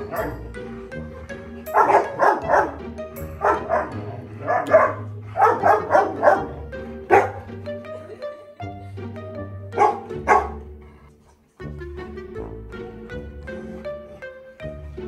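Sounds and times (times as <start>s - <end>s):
dog barking: 0.0s - 0.5s, 1.7s - 7.5s, 9.7s - 10.7s
background music: 0.0s - 15.0s.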